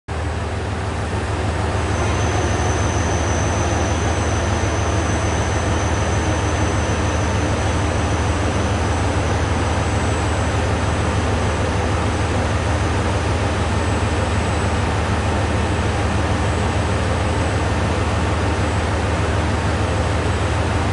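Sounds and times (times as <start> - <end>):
diesel railcar idling: 0.1 - 20.9
thin high-pitched tone: 1.9 - 10.4.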